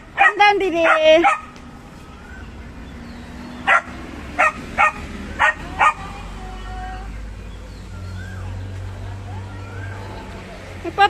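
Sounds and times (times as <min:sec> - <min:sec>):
dog barking: 0:00.2 - 0:01.5, 0:03.6 - 0:06.1.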